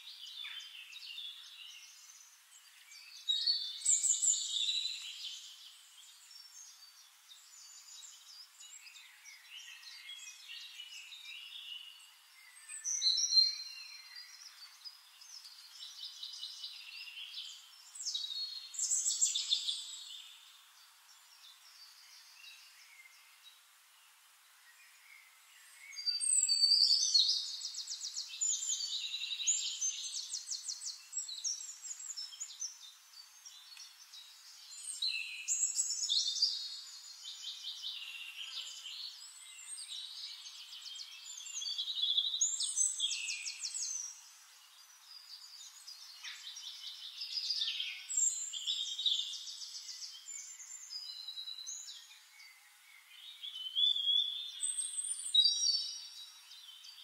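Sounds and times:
songbird singing: 0:00.0 - 0:57.0.

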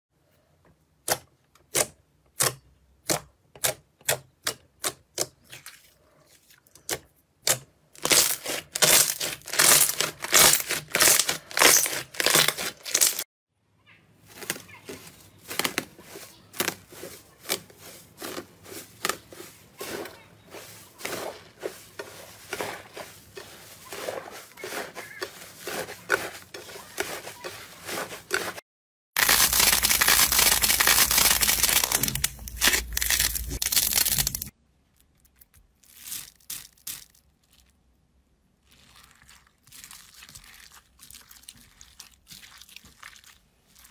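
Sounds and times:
hands squishing slime: 0:01.1 - 0:13.2, 0:14.4 - 0:28.6, 0:29.2 - 0:34.5, 0:38.6 - 0:43.9
slime crackling: 0:08.0 - 0:13.2, 0:29.2 - 0:34.5, 0:38.6 - 0:43.9.

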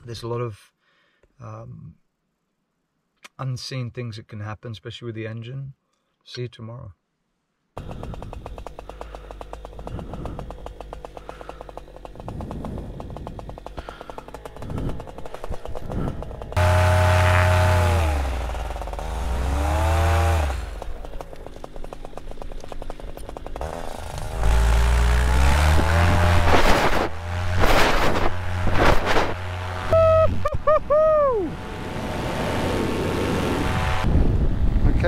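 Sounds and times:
paramotor engine revving: 0:07.8 - 0:34.8.

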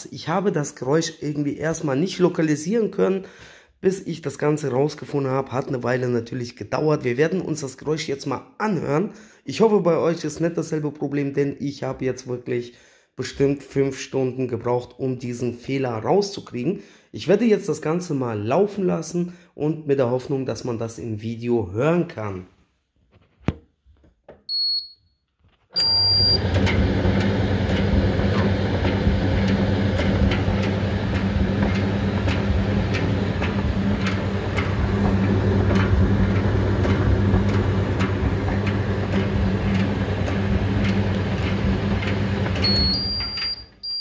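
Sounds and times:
control panel beep: 0:24.5 - 0:25.0, 0:25.8 - 0:26.4, 0:42.6 - 0:44.0
dryer drum motor hum: 0:25.8 - 0:43.7.

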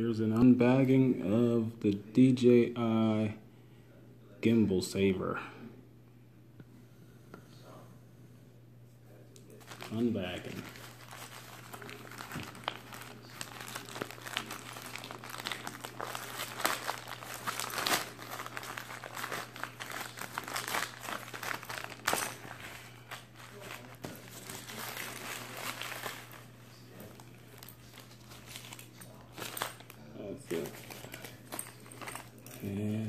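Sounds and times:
foil bag crinkling: 0:09.5 - 0:32.9.

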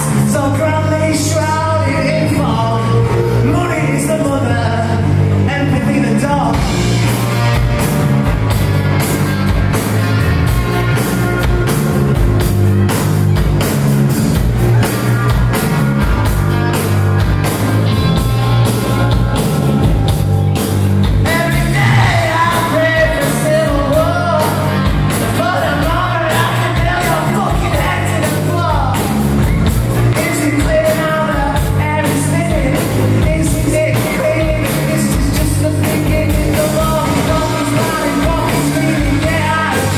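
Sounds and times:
man singing: 0:00.0 - 0:06.8, 0:21.2 - 0:29.2, 0:30.0 - 0:39.9
live rock band playing: 0:00.0 - 0:39.9.

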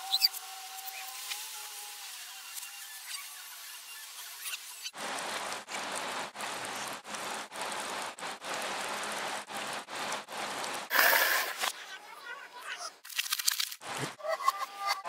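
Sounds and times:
rain falling: 0:04.9 - 0:11.7.

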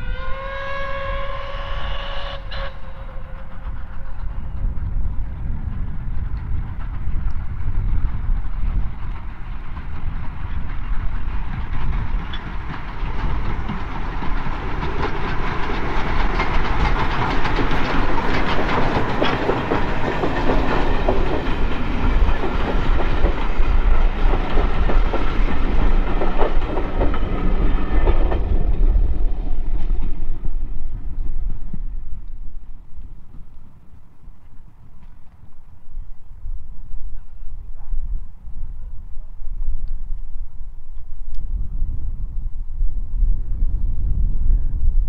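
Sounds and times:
steam train passing: 0:00.0 - 0:44.5
wheels clicking over rail joints: 0:03.1 - 0:36.0.

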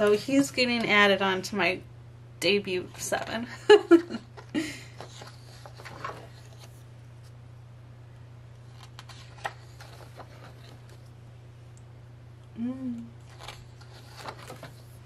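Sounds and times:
steady low hum: 0:00.0 - 0:15.0
paper pages rustling: 0:04.4 - 0:07.4, 0:08.6 - 0:11.1, 0:13.2 - 0:15.0.

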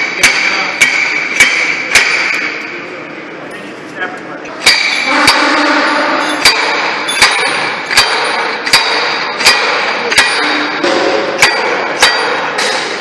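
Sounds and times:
metal driver clanging on bearing: 0:04.7 - 0:13.0.

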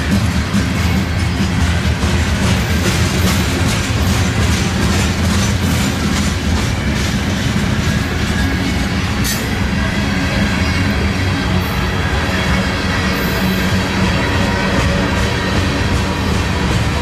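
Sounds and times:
steel wheels rumbling on rail: 0:00.0 - 0:17.0
wheels clicking over rail joints: 0:00.0 - 0:17.0.

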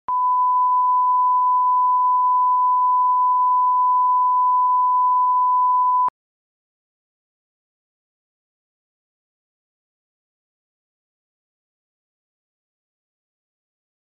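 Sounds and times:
steady test tone beep: 0:00.1 - 0:06.1.

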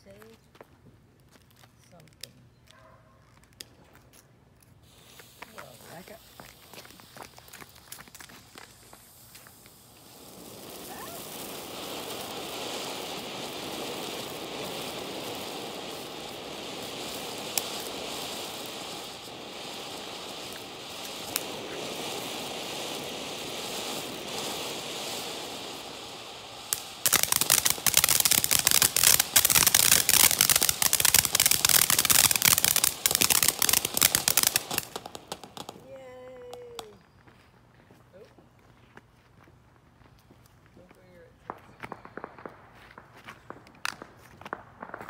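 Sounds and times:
firework fountain hissing: 0:04.8 - 0:37.0
firework pops: 0:04.9 - 0:35.9, 0:36.5 - 0:37.1, 0:41.4 - 0:45.0
dense rapid firework crackling: 0:04.9 - 0:37.0, 0:41.2 - 0:45.0.

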